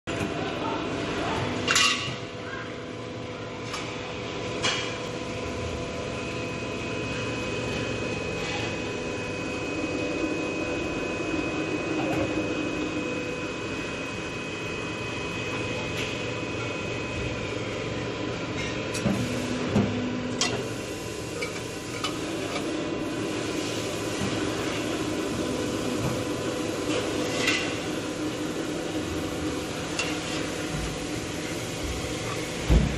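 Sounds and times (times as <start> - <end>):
machine motor hum and whine: 0.1 - 32.9.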